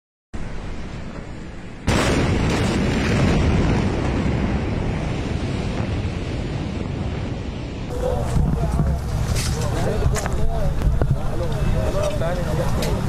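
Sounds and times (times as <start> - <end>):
wind buffeting microphone: 0.4 - 13.0
loud explosion boom: 1.8 - 9.3.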